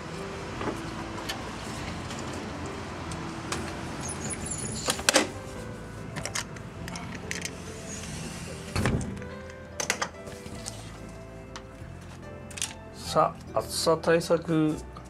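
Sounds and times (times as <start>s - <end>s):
sliding window rumbling along track: 0.0s - 9.3s.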